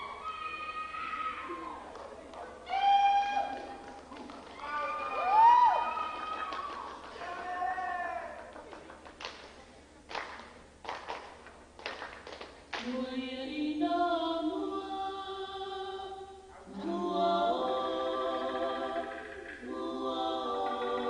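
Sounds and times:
group singing in harmony: 12.9s - 21.0s.

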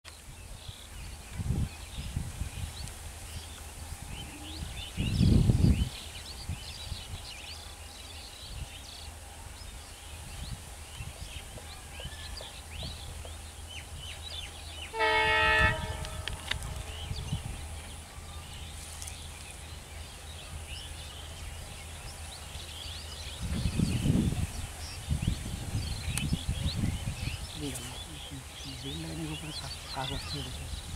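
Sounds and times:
low rumble: 14.6s - 27.4s
diesel locomotive horn: 14.8s - 17.4s.

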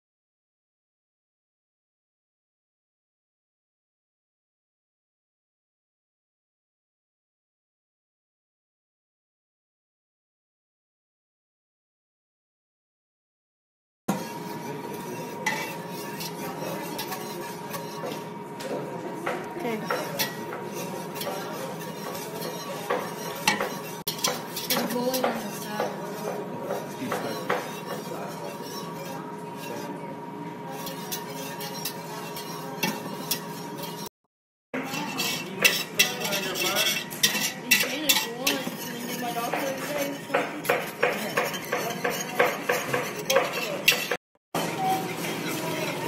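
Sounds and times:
whisk scraping metal pot: 14.1s - 34.2s, 34.8s - 46.0s.

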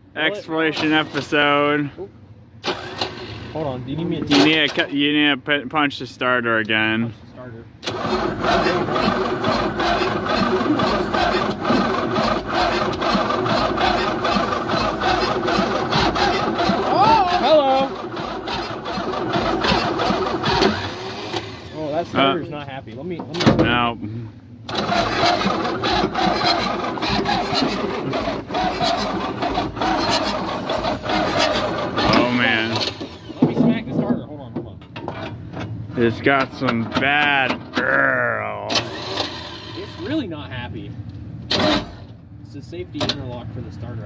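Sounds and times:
starter motor cranking diesel engine: 0.6s - 1.6s, 2.6s - 5.0s, 7.8s - 22.4s, 24.6s - 33.6s, 38.7s - 40.4s, 41.5s - 42.2s.

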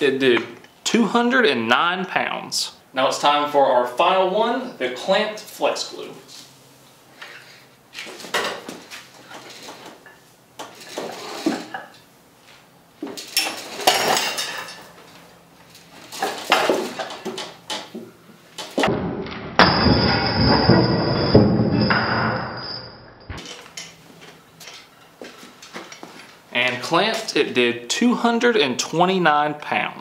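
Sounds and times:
weight plates and chain clinking: 13.2s - 15.0s, 19.6s - 24.0s
plates clattering to the floor: 13.4s - 15.0s.

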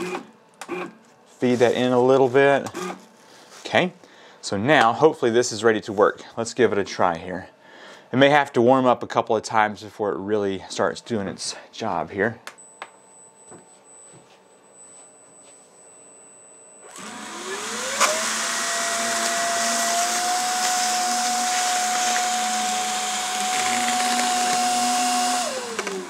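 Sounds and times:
blower whine: 16.8s - 26.0s.

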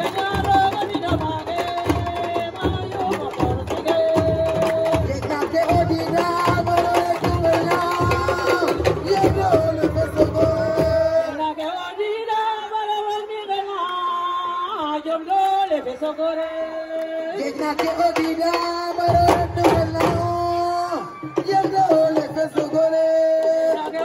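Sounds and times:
drums playing: 0.0s - 11.4s, 17.6s - 24.0s
woman singing through a pa: 0.0s - 24.0s.

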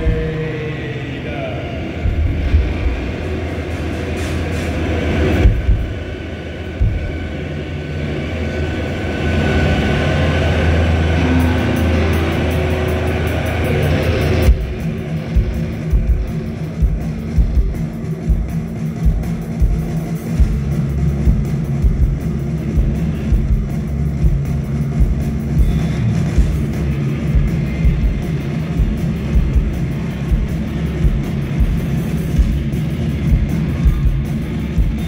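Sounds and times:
thudding low hits: 2.0s - 4.2s, 5.4s - 6.1s, 6.7s - 7.5s
live rock band playing: 11.3s - 35.0s.

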